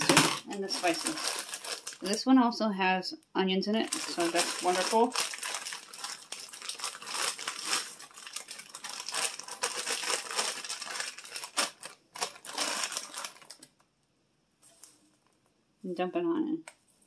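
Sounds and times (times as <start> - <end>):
plastic bag crinkling: 0.0 - 2.3, 3.8 - 13.8.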